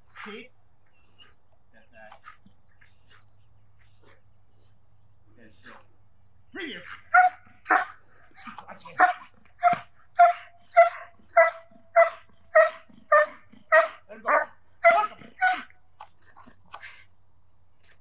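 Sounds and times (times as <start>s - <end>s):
dog barking rhythmically: 6.8s - 15.7s.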